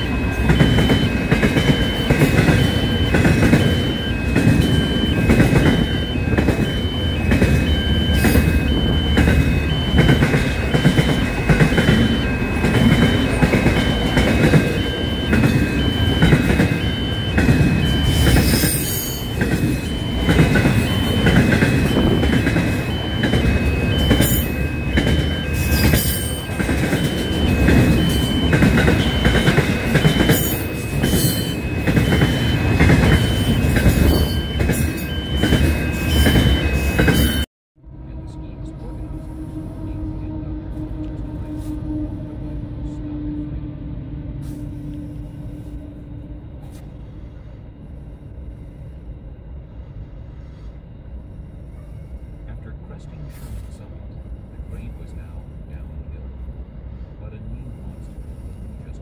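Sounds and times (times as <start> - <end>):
faint high beeping tone: 0.0 - 37.5
freight train rumbling past: 0.0 - 59.0.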